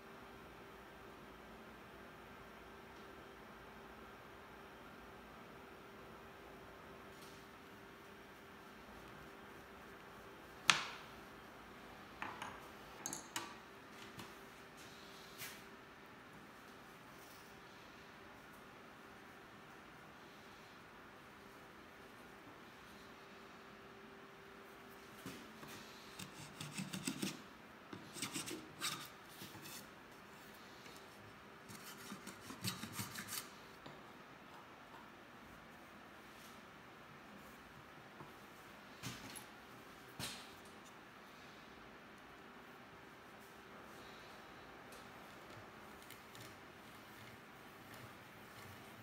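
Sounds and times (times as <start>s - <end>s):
faint steady hum: 0.0s - 49.0s
hand plane shaving wood: 28.0s - 29.9s.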